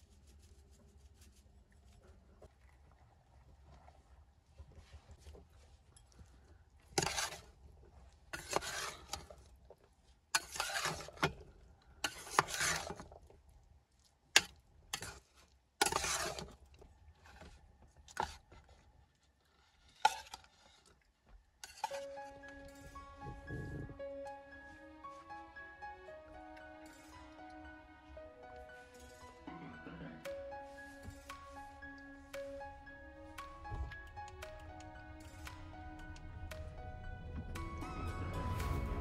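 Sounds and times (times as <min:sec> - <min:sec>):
spoon scraping pot: 0:07.0 - 0:07.4, 0:08.4 - 0:09.4, 0:10.4 - 0:11.4, 0:12.0 - 0:13.2, 0:15.8 - 0:16.6, 0:21.6 - 0:24.2, 0:28.7 - 0:35.6
soft music: 0:21.7 - 0:39.0.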